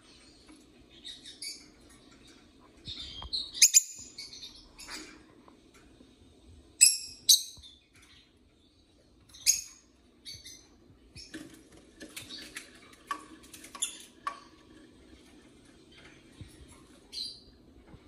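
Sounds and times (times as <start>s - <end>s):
lovebirds chirping: 0.0s - 5.2s, 6.8s - 11.5s, 15.8s - 17.6s.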